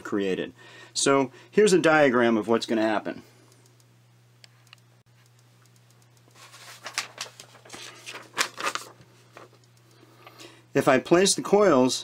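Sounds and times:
paper rustling and crackling: 0:06.3 - 0:09.6.

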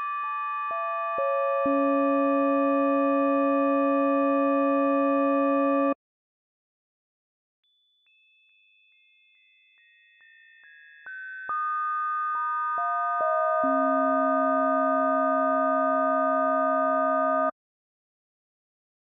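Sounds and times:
synthesized bell tones: 0:00.0 - 0:06.0, 0:12.8 - 0:17.5.

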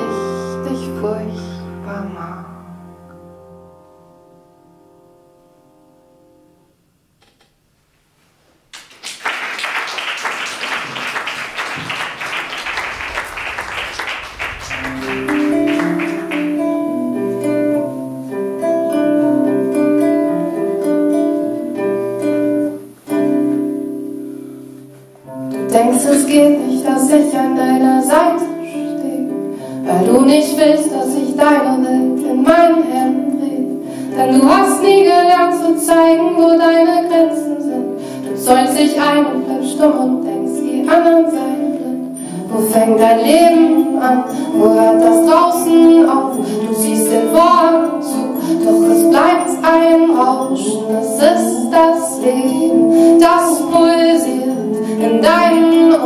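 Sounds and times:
woman singing: 0:00.0 - 0:02.5, 0:25.6 - 0:56.0
audience applause: 0:08.8 - 0:17.0
classical guitar picking: 0:14.8 - 0:56.0.

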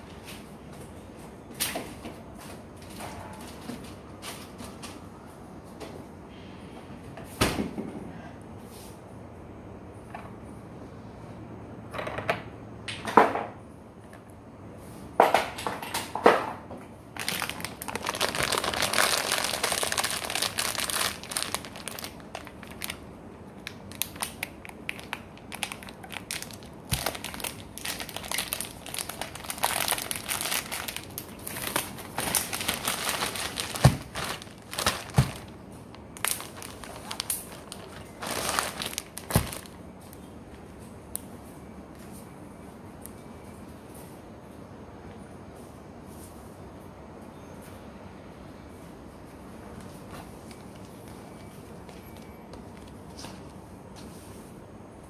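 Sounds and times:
crinkling and rustling: 0:17.1 - 0:41.0, 0:49.7 - 0:54.5.

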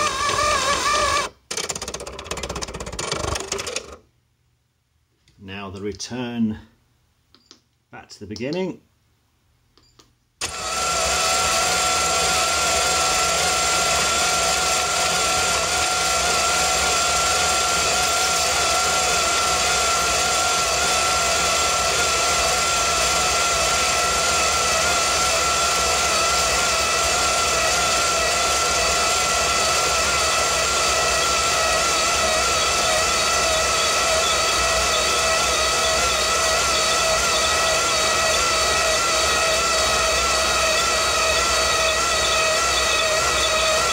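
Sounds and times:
electric motor whine: 0:10.4 - 0:43.9.

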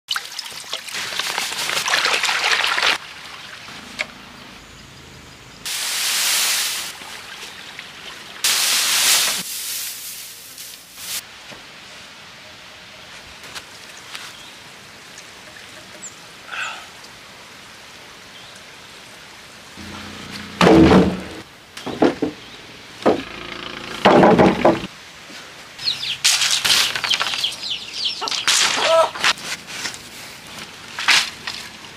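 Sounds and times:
heavy wooden knocks: 0:19.8 - 0:22.4, 0:23.0 - 0:24.9.

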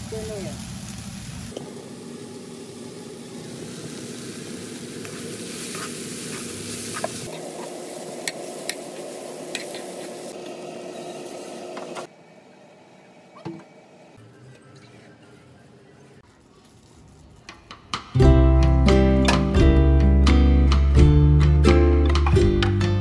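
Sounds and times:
vegetables sizzling in a wok: 0:00.0 - 0:12.1.

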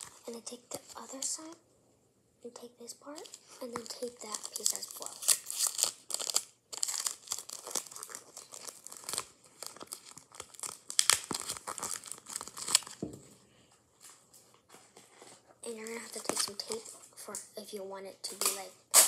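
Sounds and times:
tape and paper crinkling: 0:00.0 - 0:01.6, 0:03.0 - 0:13.0, 0:14.0 - 0:17.4, 0:18.2 - 0:19.0
sharp tape snaps: 0:18.3 - 0:19.0.

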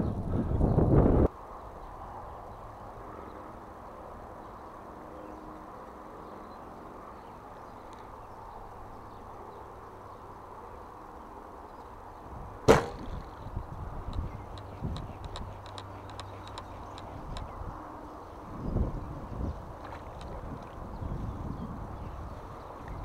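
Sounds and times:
bow shot snapping: 0:12.7 - 0:13.4.

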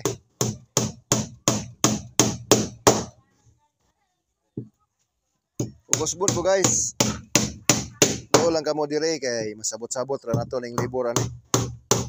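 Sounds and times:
hammer driving nails into wood: 0:00.0 - 0:03.2, 0:11.1 - 0:12.0.

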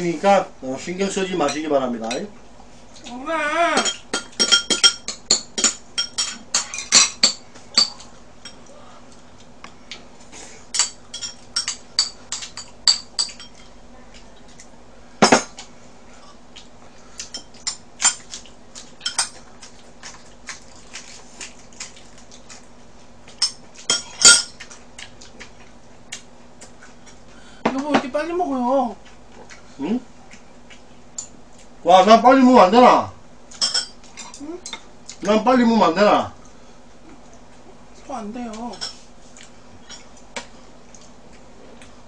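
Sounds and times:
chopsticks clinking on dishes: 0:03.8 - 0:08.6, 0:10.8 - 0:13.7.

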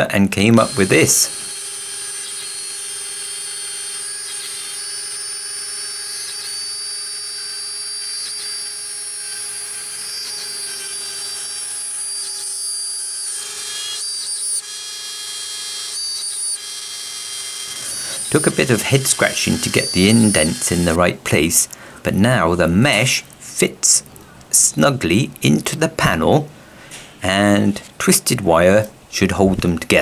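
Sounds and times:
router spindle whine: 0:00.0 - 0:21.7.

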